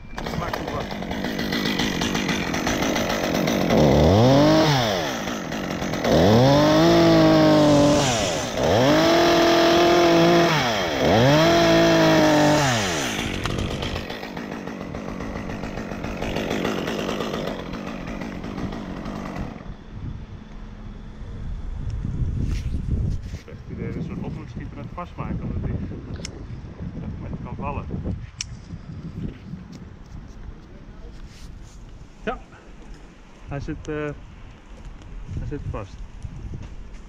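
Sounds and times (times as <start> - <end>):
chainsaw revving: 0.2 - 19.7
chainsaw idling: 0.2 - 19.8.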